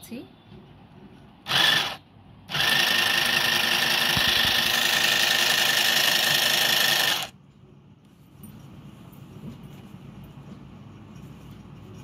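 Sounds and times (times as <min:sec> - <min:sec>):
sewing machine stitching: 0:01.5 - 0:07.3.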